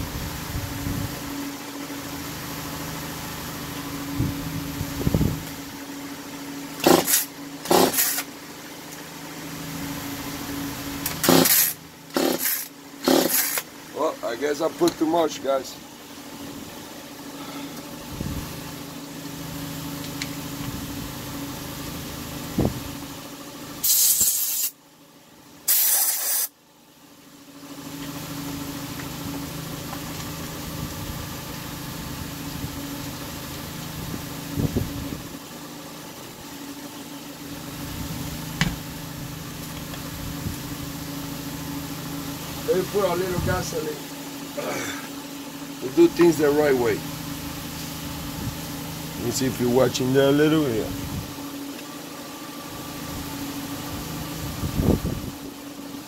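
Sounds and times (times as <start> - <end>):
low background hum: 0.0 - 56.0
aerosol spray bursts: 6.8 - 8.3, 11.2 - 13.6, 23.8 - 24.8, 25.7 - 26.5.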